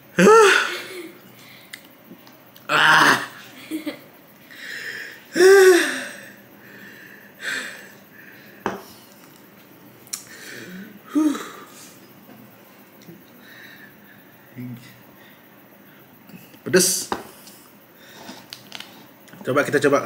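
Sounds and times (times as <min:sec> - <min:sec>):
man groaning: 0:00.2 - 0:00.8, 0:02.7 - 0:03.4.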